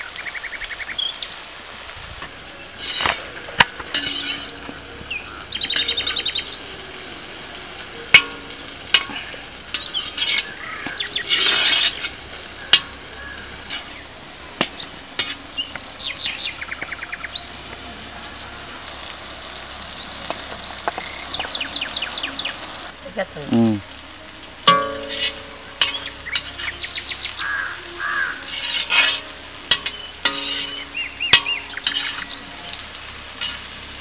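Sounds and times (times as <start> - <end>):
birds chirping: 0.0 - 34.0
frying sizzle: 0.0 - 34.0
metal spatula scraping iron pan: 2.6 - 6.6, 8.0 - 15.8, 24.6 - 34.0.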